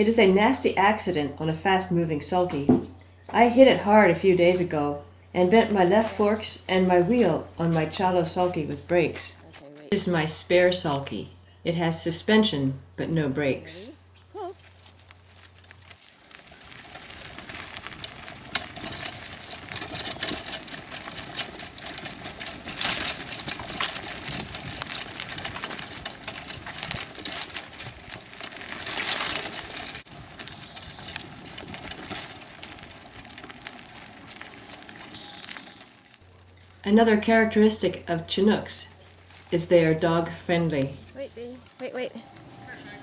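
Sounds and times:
cart suspension rattling: 0:14.5 - 0:41.9.

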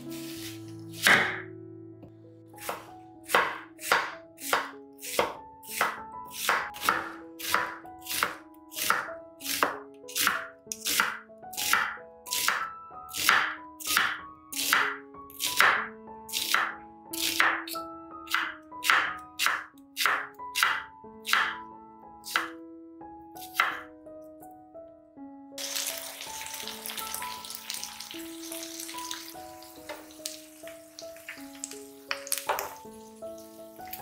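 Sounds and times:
knife chopping onion: 0:00.2 - 0:01.4, 0:02.6 - 0:21.6, 0:22.2 - 0:22.5, 0:23.4 - 0:23.9
knife slicing onion on board: 0:00.2 - 0:01.4, 0:02.6 - 0:21.6, 0:22.3 - 0:22.5, 0:23.4 - 0:23.9.

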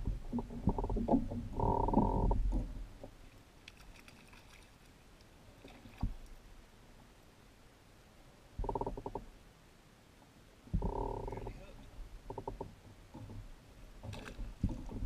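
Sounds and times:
faint fish splashing: 0:02.5 - 0:06.9.

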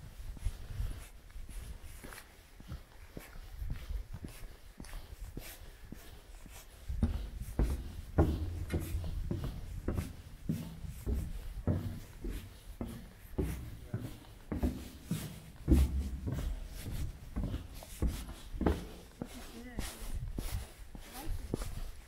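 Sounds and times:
footsteps walking: 0:00.0 - 0:22.0
low rumble: 0:07.1 - 0:12.2.

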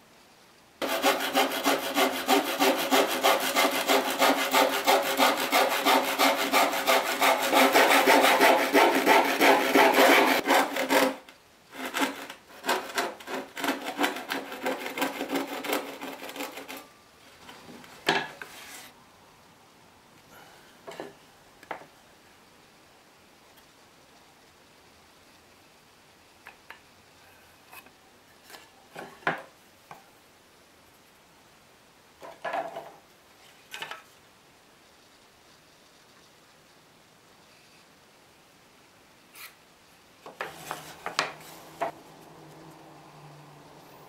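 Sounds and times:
handsaw cutting wood: 0:00.8 - 0:16.9, 0:40.4 - 0:42.0.

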